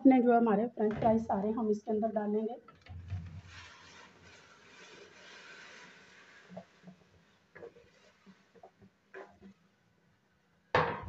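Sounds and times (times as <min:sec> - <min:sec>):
potato fries plopping into water: 0:03.5 - 0:09.5.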